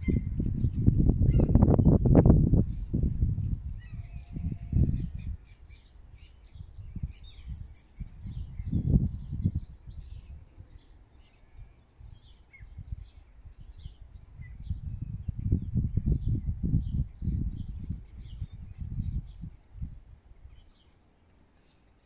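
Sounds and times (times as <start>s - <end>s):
small birds chirping: 0.0s - 2.9s, 3.7s - 22.0s.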